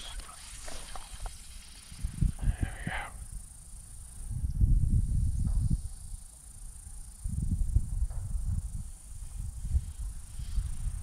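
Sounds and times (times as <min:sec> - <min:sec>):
low rumbling buffeting on microphone: 0:00.0 - 0:03.4, 0:04.2 - 0:06.2, 0:07.2 - 0:11.0
faint steady high hiss: 0:00.0 - 0:11.0.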